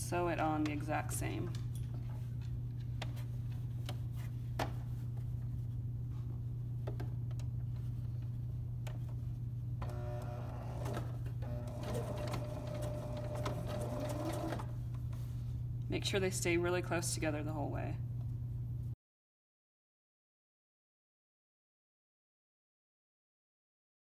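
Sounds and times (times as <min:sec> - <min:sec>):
sewing machine motor whine: 0:09.8 - 0:14.7.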